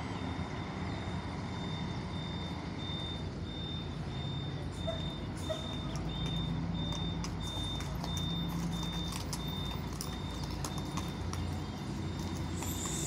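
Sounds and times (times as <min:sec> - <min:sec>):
diesel coach engine running: 0:00.0 - 0:13.0
high electronic warning beeper: 0:00.0 - 0:13.0
horse hooves clopping on pavement: 0:04.9 - 0:13.0.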